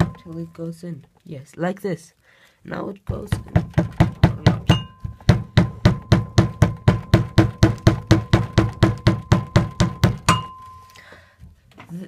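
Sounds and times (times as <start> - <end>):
hammer tapping steel drift: 3.1 - 10.9.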